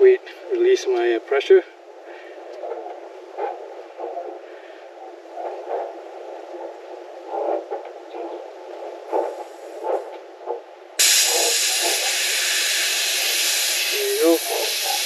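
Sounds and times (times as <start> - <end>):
high-pressure air hiss: 11.0 - 15.0.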